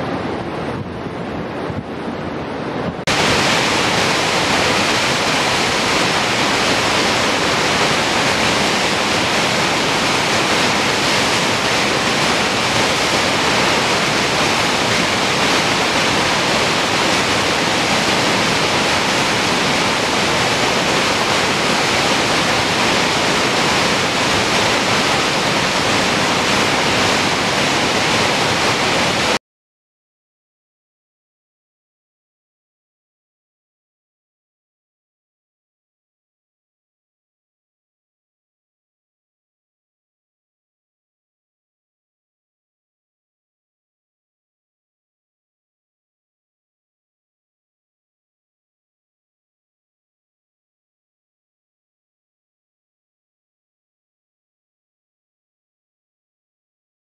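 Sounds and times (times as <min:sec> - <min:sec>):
river rushing: 0:00.0 - 0:29.4
water and wind: 0:00.0 - 0:29.4.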